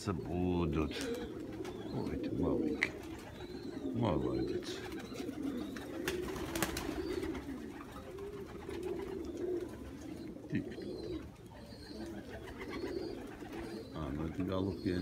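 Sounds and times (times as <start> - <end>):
pigeons cooing: 0.0 - 15.0.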